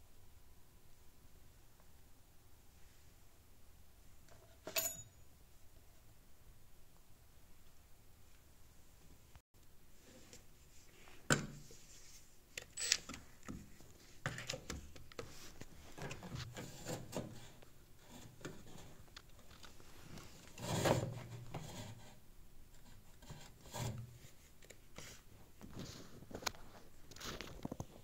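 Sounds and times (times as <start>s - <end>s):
scrape: 10.0s - 12.4s, 15.2s - 19.0s, 19.8s - 22.2s, 22.8s - 27.5s.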